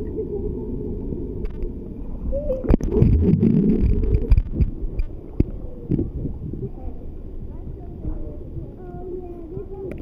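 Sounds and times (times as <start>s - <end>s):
underwater rumble of moving water: 0.0s - 8.8s
water churning: 2.6s - 5.4s.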